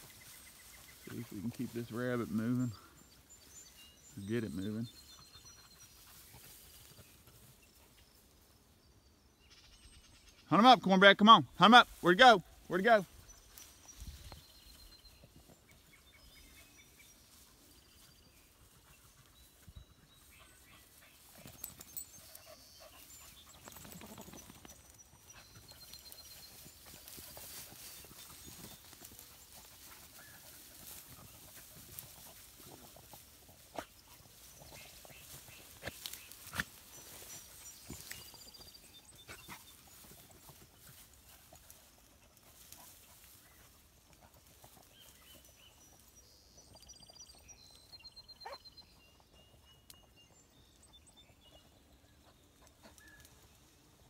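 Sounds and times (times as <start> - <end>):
vegetation rustling: 0.0 - 4.8, 20.2 - 45.2
faint dog barks: 48.4 - 48.8.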